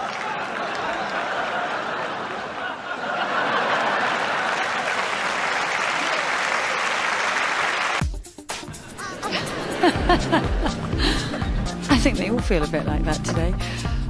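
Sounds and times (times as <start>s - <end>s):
crowd applauding: 0.0s - 8.0s.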